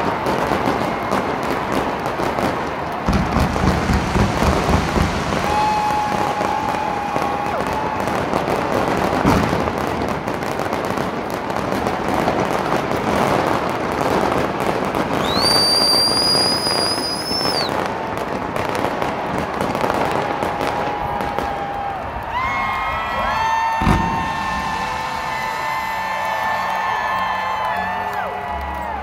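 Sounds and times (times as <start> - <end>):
fireworks crackling: 0.0 - 29.0
firework bang: 3.0 - 7.6, 8.3 - 11.2, 23.6 - 27.0
high gliding whistle: 15.2 - 17.7.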